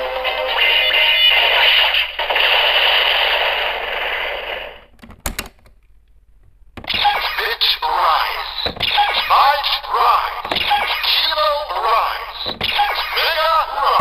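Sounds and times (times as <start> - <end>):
toy belt electronic music: 6.9 - 14.0.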